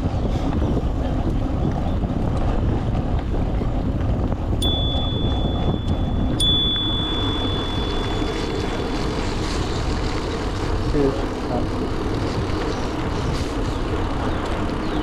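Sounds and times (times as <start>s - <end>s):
bicycle riding noise: 0.0s - 15.0s
wind: 0.0s - 15.0s
bicycle bell ringing: 4.6s - 10.0s.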